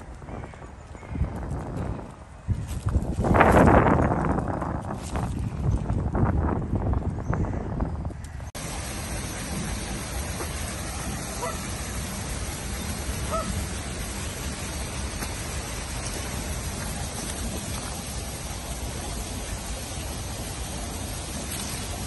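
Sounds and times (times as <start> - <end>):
steady hiss: 8.6 - 22.0.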